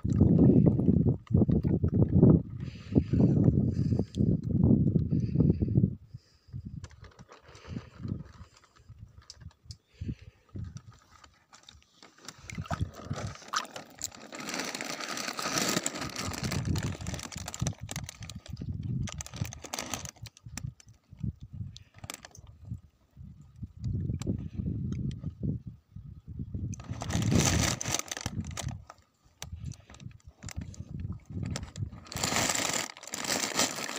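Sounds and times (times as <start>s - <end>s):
water splashing and sloshing: 11.6s - 14.2s.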